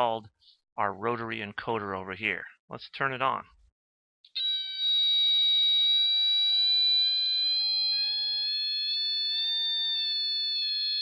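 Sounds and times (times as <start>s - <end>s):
electronic tone from loudspeaker: 4.9s - 10.3s.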